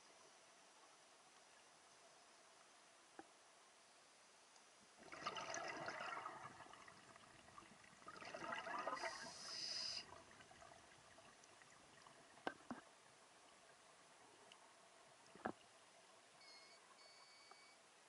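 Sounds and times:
air bubbling from regulator: 5.0 - 10.7.

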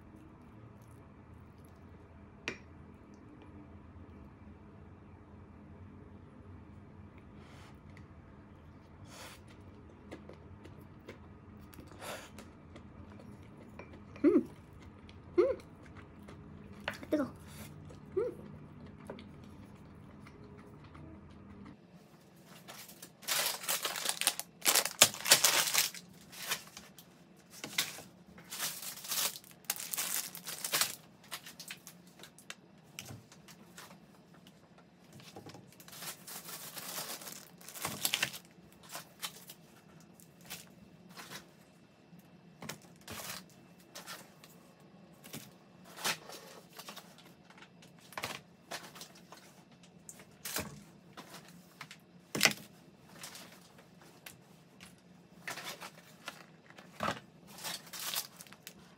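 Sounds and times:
rustling and crinkling: 22.0 - 41.8, 42.6 - 58.9.

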